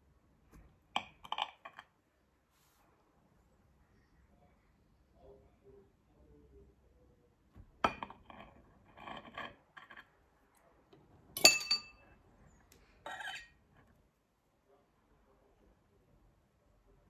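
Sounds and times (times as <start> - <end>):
knife scraping serving board: 8.3 - 10.1, 13.0 - 13.5
cutlery clinking on plate: 11.4 - 12.1, 13.1 - 13.6.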